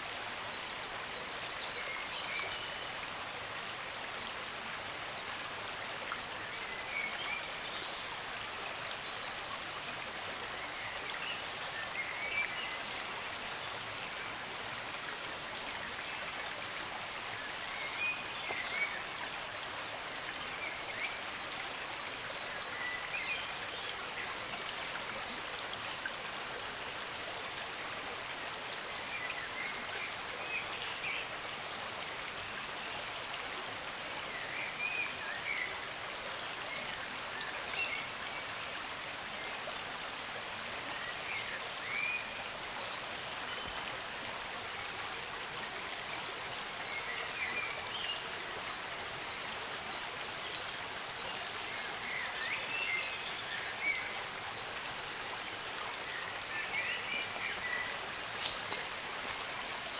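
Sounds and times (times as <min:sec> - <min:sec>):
stream babbling over stones: 0:00.0 - 0:59.9
songbird chirping: 0:55.0 - 0:59.9.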